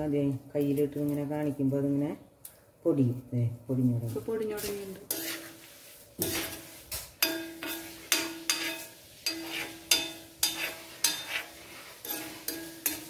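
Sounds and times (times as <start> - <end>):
spoon stirring leaves in oil: 3.9 - 13.0
spoon knocking against metal pot: 7.2 - 11.4, 12.0 - 13.0.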